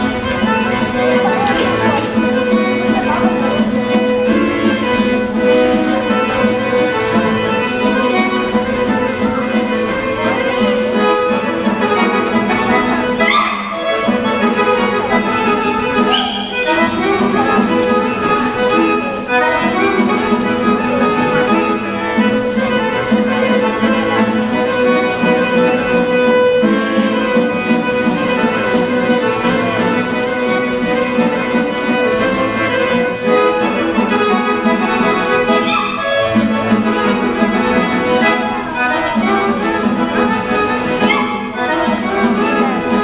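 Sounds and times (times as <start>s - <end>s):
accordion-led folk dance music: 0.0s - 43.0s
fiddle: 0.0s - 43.0s.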